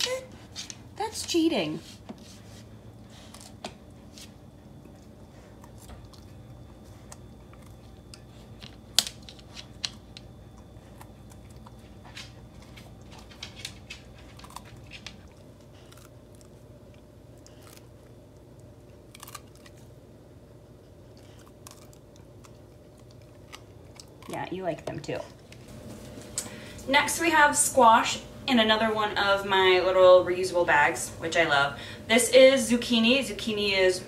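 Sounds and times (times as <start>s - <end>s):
dog chewing: 2.3s - 26.3s.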